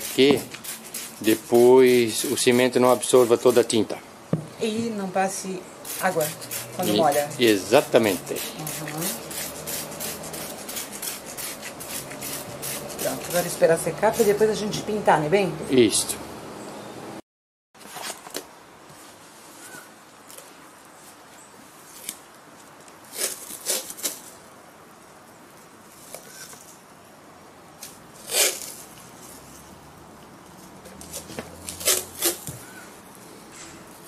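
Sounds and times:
masking tape ripping off roll: 5.9 - 13.5, 21.8 - 22.3, 22.9 - 24.4, 27.8 - 29.4, 30.5 - 32.7.

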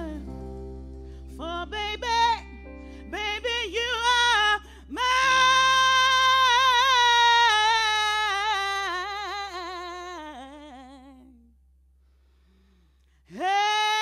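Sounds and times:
soft electric guitar chord: 0.0 - 6.4.

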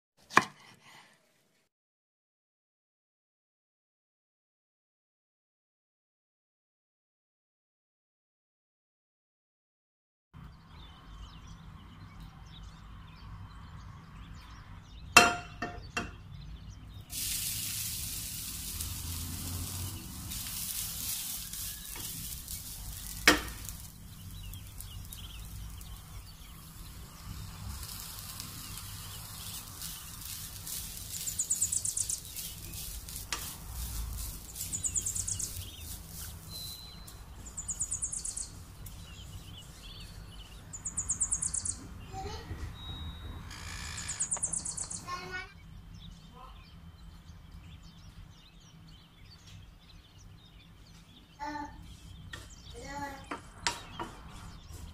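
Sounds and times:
coconut sizzling in a pan: 17.1 - 39.1
spatula scraping a pan: 18.6 - 25.8, 27.7 - 36.8.

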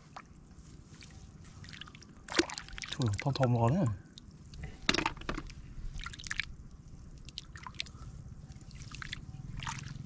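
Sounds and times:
hand squelching in mud and water: 0.0 - 3.4, 5.4 - 6.5, 7.2 - 10.0.

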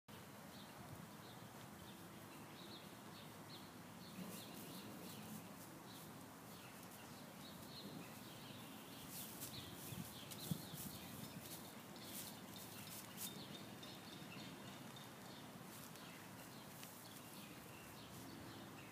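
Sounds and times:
soft rustles: 4.2 - 13.6, 14.8 - 18.5.

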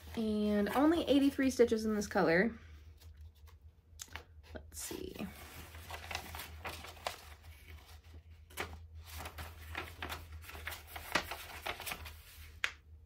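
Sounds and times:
packaging rustling and crinkling: 5.0 - 12.7.

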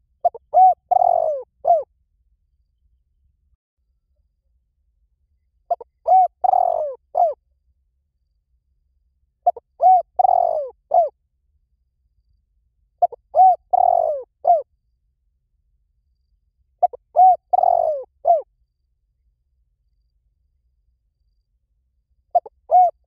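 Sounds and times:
dove cooing: 0.2 - 1.9, 5.7 - 7.4, 9.4 - 11.1, 13.0 - 14.6, 16.8 - 18.5, 22.3 - 23.0.

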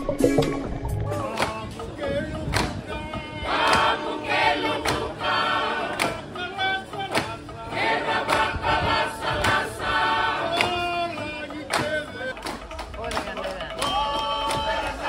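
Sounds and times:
sharp struck beat: 0.0 - 1.7
group singing in chorus: 0.0 - 12.6, 14.0 - 15.0.

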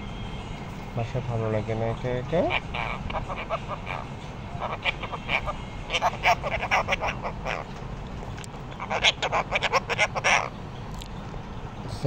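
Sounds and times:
parakeet squawking chatter: 1.6 - 10.8.

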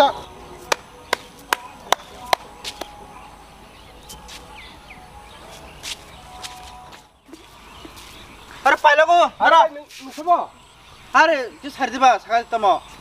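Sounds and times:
sharp taps in palm: 0.7 - 3.0.

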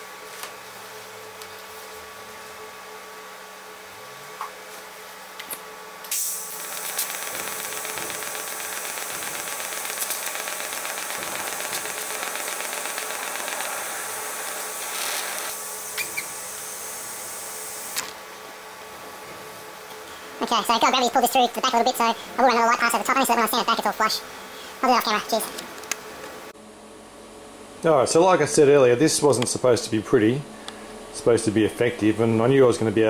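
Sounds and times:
welding arc hissing: 6.1 - 18.1.

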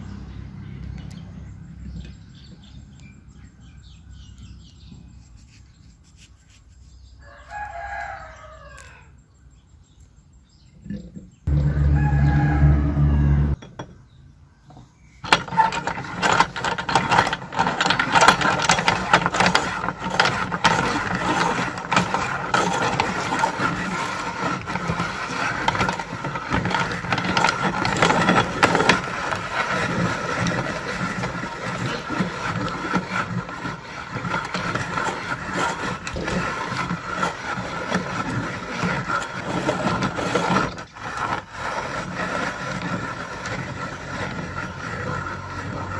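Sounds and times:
short pitched sound: 11.5 - 13.6
hand-cranked meat grinder rattling: 15.2 - 45.9.

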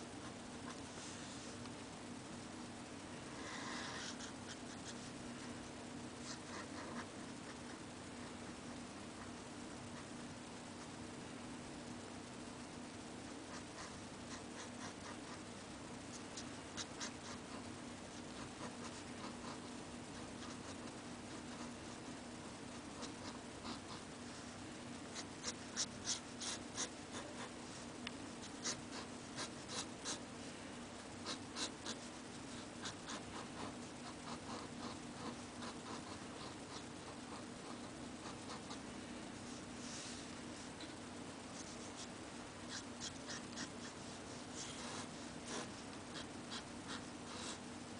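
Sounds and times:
faint steady hum: 0.0 - 47.9
pen nib scratching paper: 25.2 - 27.5, 28.4 - 30.2, 42.7 - 47.6.

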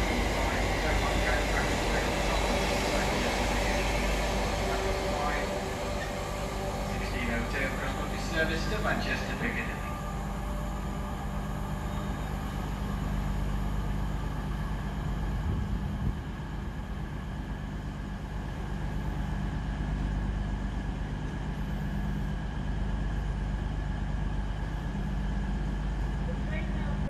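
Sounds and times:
freight train rumbling: 0.0 - 27.0.

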